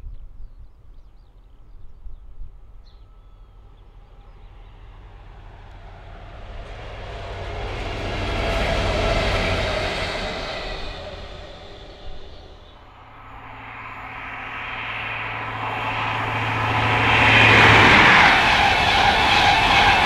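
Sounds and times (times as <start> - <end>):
diesel locomotive engines: 2.3 - 20.0
wheels on rails: 13.4 - 20.0.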